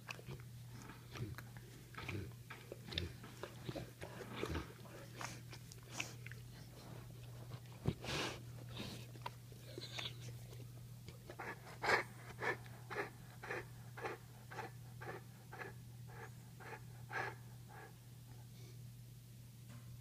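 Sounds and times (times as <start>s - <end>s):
dog panting: 11.2s - 18.4s.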